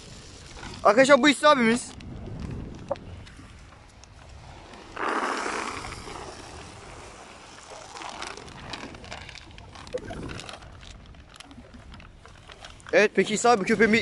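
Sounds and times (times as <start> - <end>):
plastic sack rustling: 4.5 - 13.4.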